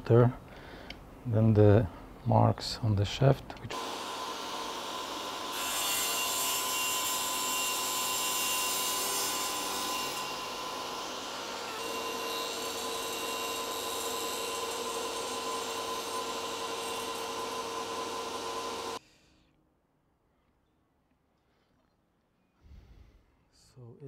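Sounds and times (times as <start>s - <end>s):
steady saw whine: 3.7s - 19.0s
table saw cutting plastic pipe: 3.7s - 19.0s.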